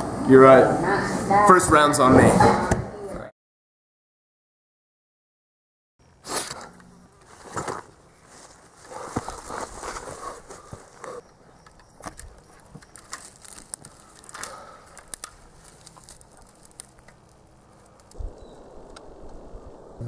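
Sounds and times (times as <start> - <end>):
twigs and leaves crackling: 7.2 - 20.0.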